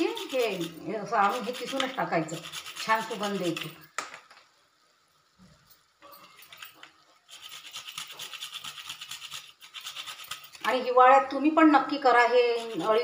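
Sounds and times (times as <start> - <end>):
nutmeg rasping on metal grater: 0.0 - 3.9, 7.3 - 11.0, 11.7 - 13.0.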